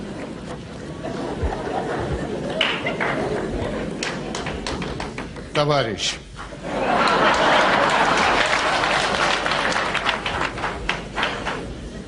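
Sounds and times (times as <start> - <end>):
audience applauding: 2.4 - 5.3, 6.8 - 11.9.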